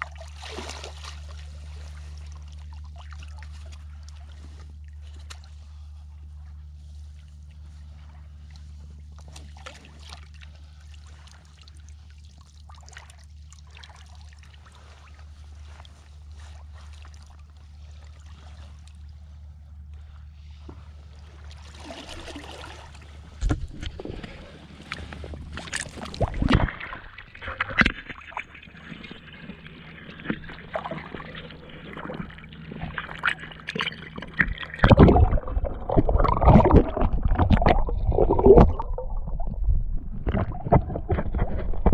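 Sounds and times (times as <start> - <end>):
sharp water splashes: 0.0 - 1.5, 24.8 - 29.2, 30.2 - 41.5
water sloshing and splashing: 0.0 - 41.9
muffled underwater gurgling: 21.6 - 41.9.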